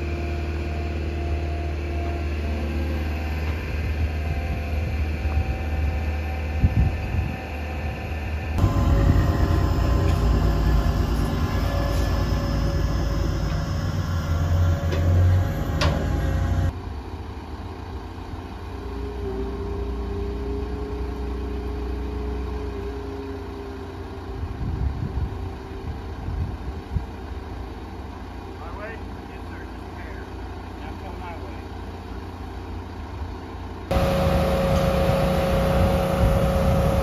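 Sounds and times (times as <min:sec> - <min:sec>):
large engines idling: 0:00.0 - 0:37.0.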